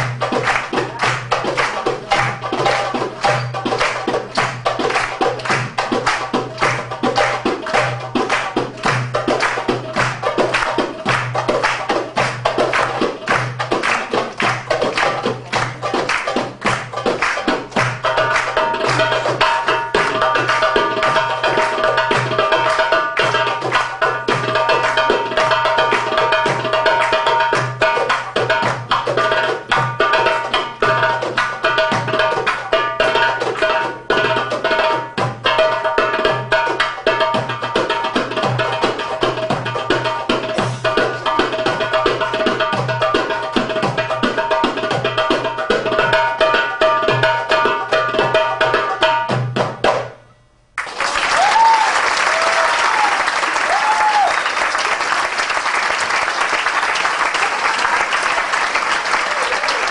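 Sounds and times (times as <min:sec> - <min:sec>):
audience applause: 0:00.0 - 0:03.4, 0:09.4 - 0:19.1, 0:50.8 - 0:59.9
goblet drums fast rhythm: 0:00.0 - 0:50.2.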